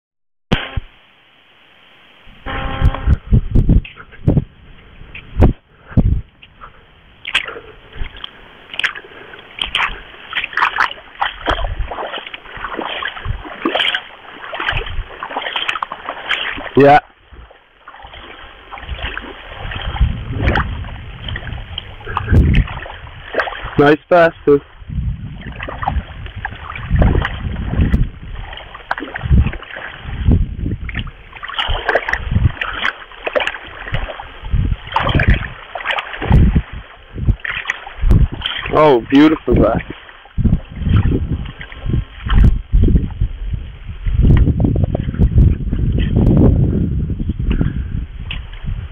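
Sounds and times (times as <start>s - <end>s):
low thumps: 2.3s - 4.5s
small waves lapping and splashing: 4.0s - 46.3s.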